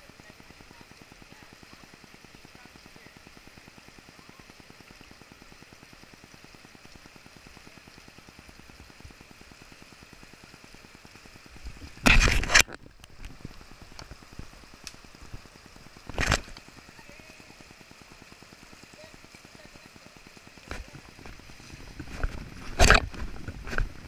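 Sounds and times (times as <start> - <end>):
flowing river water: 0.0 - 24.0.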